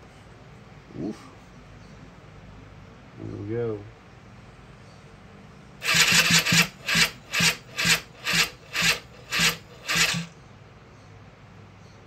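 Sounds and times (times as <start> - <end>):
electric starter cranking engine: 5.8 - 10.3.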